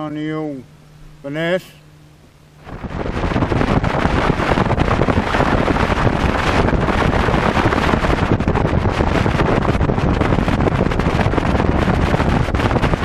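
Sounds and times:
outboard motor running: 0:00.6 - 0:13.0
wind buffeting microphone: 0:02.6 - 0:13.0.

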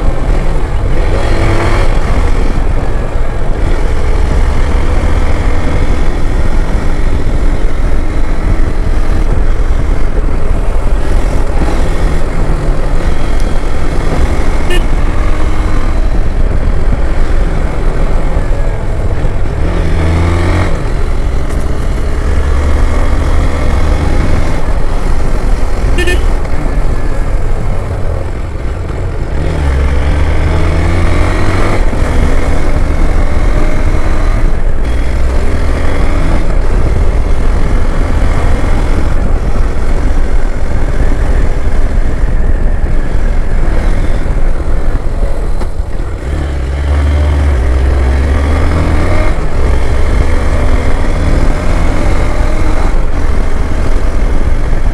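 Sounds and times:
motorcycle engine running: 0:00.0 - 0:54.9
wind noise on microphone: 0:00.0 - 0:54.9
motorcycle horn toots: 0:14.6 - 0:15.1, 0:25.9 - 0:26.4.

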